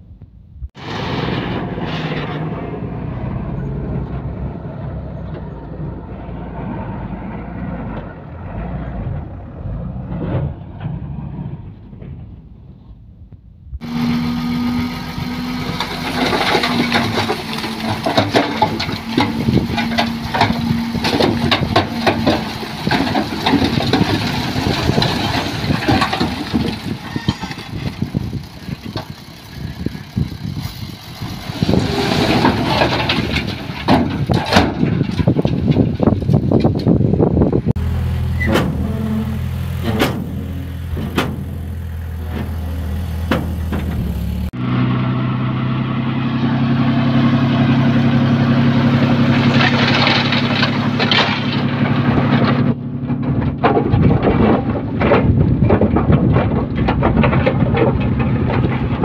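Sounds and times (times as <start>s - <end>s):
diesel engine running: 13.7s - 59.0s.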